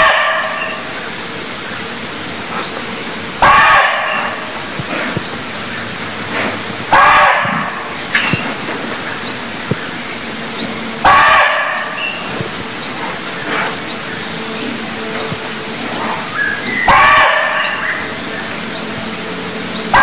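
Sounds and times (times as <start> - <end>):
deer barking: 0.0 - 0.8, 3.4 - 4.5, 6.9 - 7.9, 11.0 - 12.2, 16.7 - 18.1.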